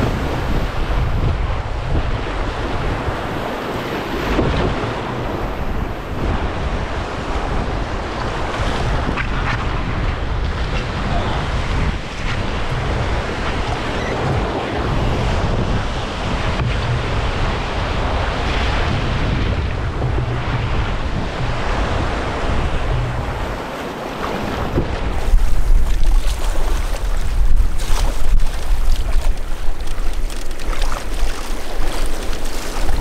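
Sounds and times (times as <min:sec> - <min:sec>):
waves washing around canoe: 0:00.0 - 0:33.0
wind buffeting microphone: 0:00.0 - 0:33.0.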